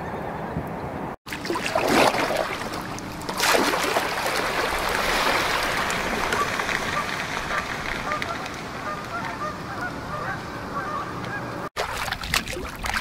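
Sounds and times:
paddle strokes splashing: 1.3 - 9.2, 11.8 - 13.0
water lapping along hull: 1.3 - 13.0.

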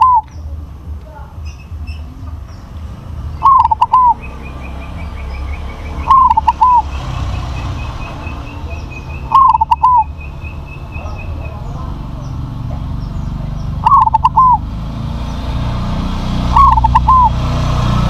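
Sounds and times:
dove cooing: 0.0 - 0.4, 3.4 - 12.8, 13.4 - 14.7, 16.5 - 17.4
faint high chirps: 3.4 - 11.8.

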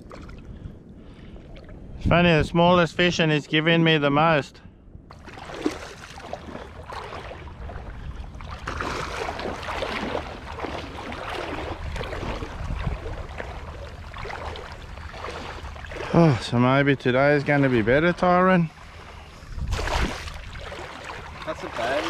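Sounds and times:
low steady rumble: 0.0 - 22.0
water splashing from thrashing fish: 5.1 - 16.4, 18.7 - 22.0.

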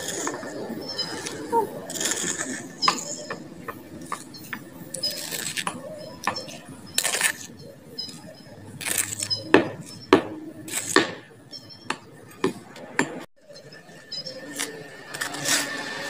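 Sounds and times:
plastic toys scraping: 0.0 - 11.3, 14.4 - 16.0
plastic toys clicking: 4.0 - 7.5.

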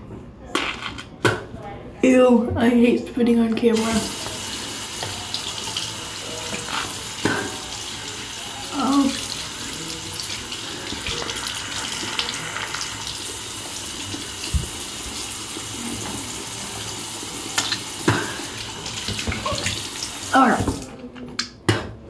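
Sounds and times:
tap running into sink: 3.8 - 5.8, 10.8 - 16.3.

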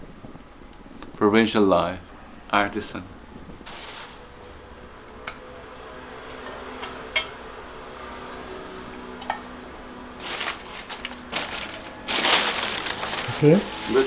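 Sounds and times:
faint steady hum: 0.0 - 14.0
paper wrapping rustling: 3.6 - 4.4, 10.2 - 14.0.

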